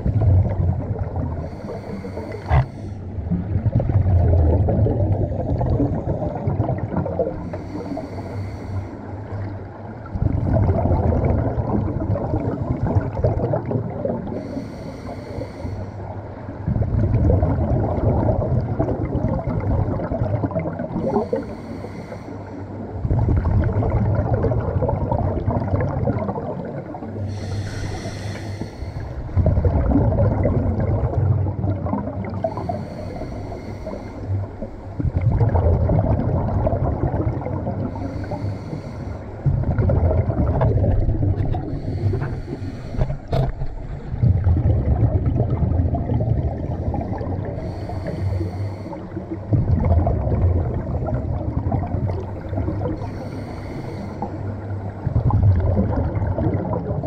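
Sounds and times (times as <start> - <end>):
exhaled bubbles rumbling: 0.0 - 15.2, 16.0 - 21.8, 22.7 - 57.0
regulator inhale hiss: 1.4 - 3.1, 7.4 - 9.2, 14.4 - 16.1, 21.1 - 22.7, 27.3 - 29.4, 32.4 - 35.0, 37.9 - 39.4, 41.6 - 43.5, 46.7 - 49.4, 52.8 - 54.9.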